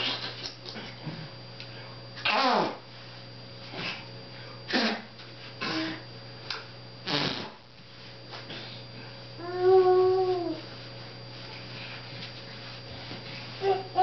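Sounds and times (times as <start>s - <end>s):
baby crying and grunting: 13.6s - 14.0s.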